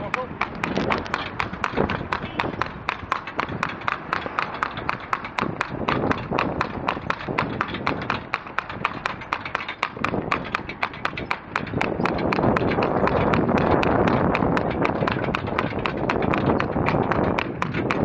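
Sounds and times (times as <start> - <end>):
cart wheels rumbling: 0.0 - 18.0
hooves clip-clopping on tarmac: 0.0 - 18.0.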